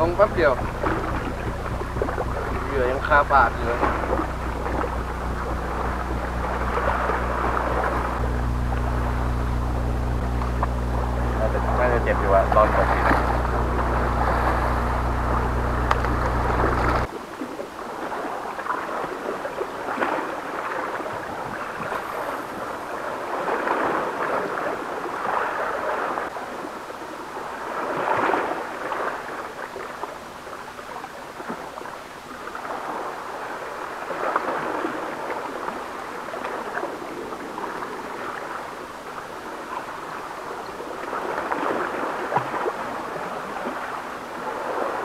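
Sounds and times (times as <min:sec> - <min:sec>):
steady low hum: 0:00.0 - 0:17.1, 0:21.8 - 0:23.0
sea waves against rocks: 0:00.0 - 0:45.0
wind: 0:00.0 - 0:45.0.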